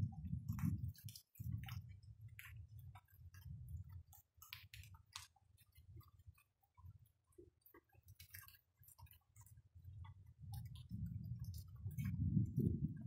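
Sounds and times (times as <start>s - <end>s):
soft low rumble: 0.0s - 4.0s, 10.5s - 13.0s
faint rain dripping: 0.0s - 13.0s.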